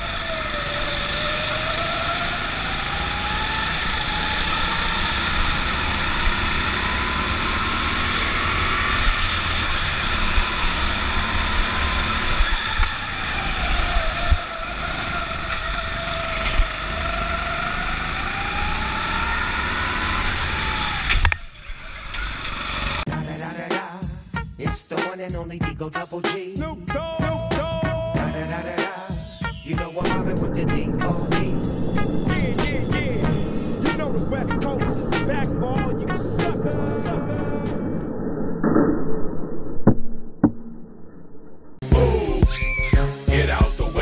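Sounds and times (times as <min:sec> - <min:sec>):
go-kart motors whining: 0:00.0 - 0:23.1
music with a beat: 0:23.1 - 0:35.6, 0:41.8 - 0:44.0.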